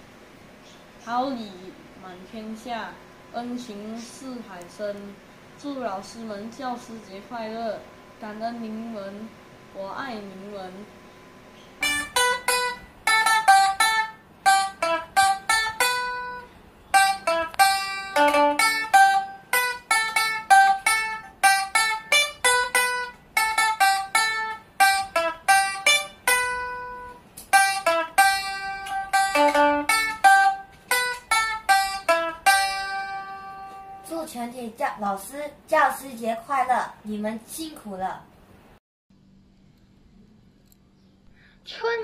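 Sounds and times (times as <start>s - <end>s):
plucked lute melody: 11.8s - 34.1s.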